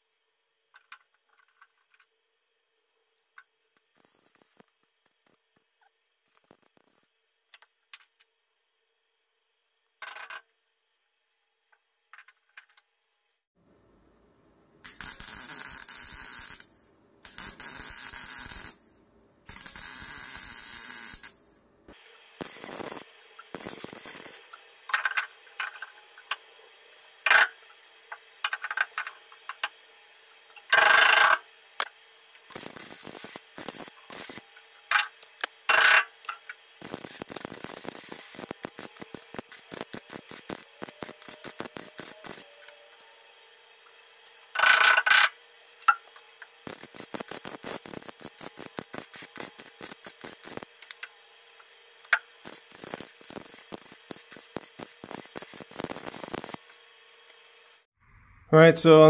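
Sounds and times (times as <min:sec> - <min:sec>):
welder crackling hiss: 0:03.8 - 0:05.6, 0:06.2 - 0:07.1, 0:14.8 - 0:43.1, 0:43.9 - 0:57.9.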